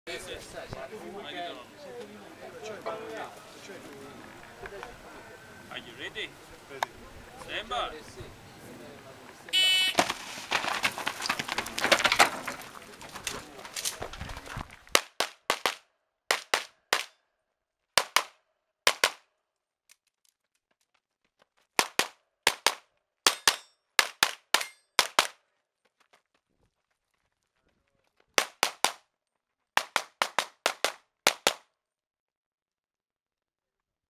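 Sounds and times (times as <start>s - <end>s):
rustling and scuffling: 9.9s - 14.9s.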